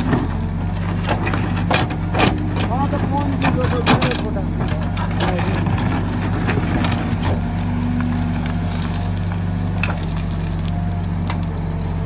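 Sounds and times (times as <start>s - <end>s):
clicks and scrapes of digging: 0.0s - 11.6s
diesel engine under load: 0.0s - 12.0s.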